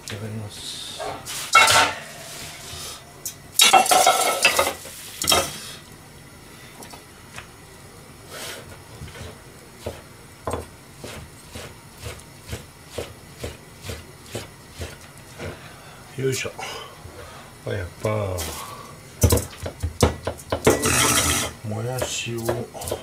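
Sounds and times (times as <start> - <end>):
knife chopping on cutting board: 9.1 - 15.6, 19.2 - 21.4, 22.0 - 23.0.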